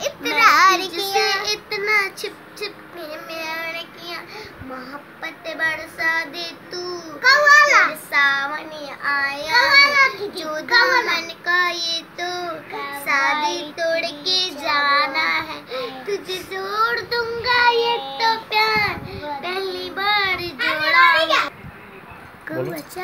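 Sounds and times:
girl singing unaccompanied: 0:00.0 - 0:21.5.

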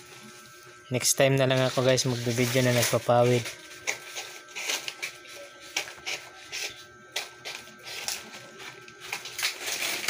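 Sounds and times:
palm leaves rustling: 0:01.4 - 0:04.9.

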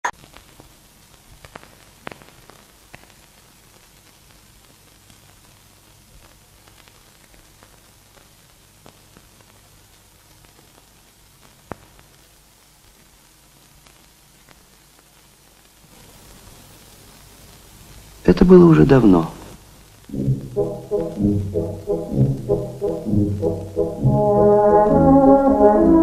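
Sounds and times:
film soundtrack hiss: 0:00.0 - 0:26.0
low steady hum: 0:20.1 - 0:26.0.

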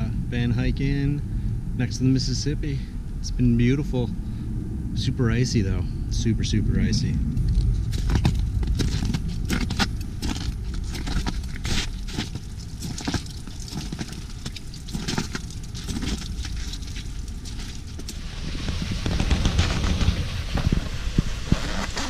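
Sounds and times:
wind rumble on microphone: 0:00.0 - 0:22.0
footsteps crunching on icy snow: 0:07.6 - 0:22.0.

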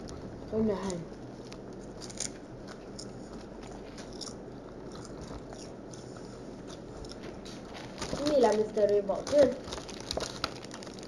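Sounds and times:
plastic packaging crinkling: 0:07.2 - 0:11.0.

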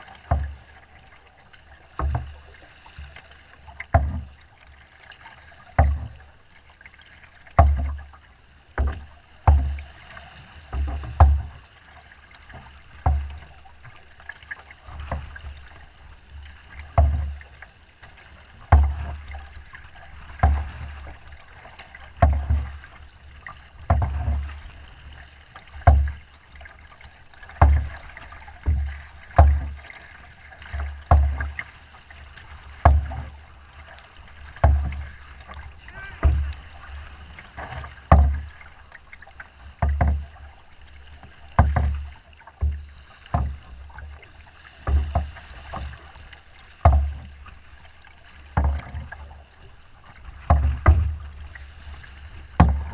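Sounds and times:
canoe hull thudding on waves: 0:00.0 - 0:52.9
water sloshing: 0:00.0 - 0:52.9.

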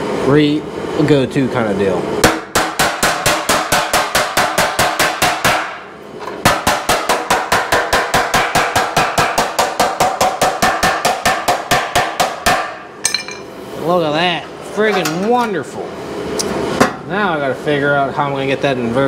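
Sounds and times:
hammer tapping sheet metal: 0:02.2 - 0:13.5.

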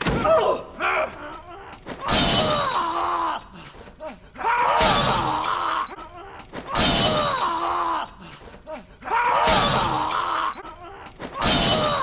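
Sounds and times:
glass shattering: 0:11.4 - 0:12.0.

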